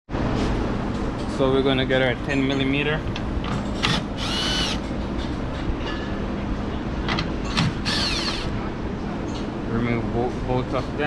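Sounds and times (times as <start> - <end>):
cordless drill motor whining: 3.9 - 4.8, 7.8 - 8.5.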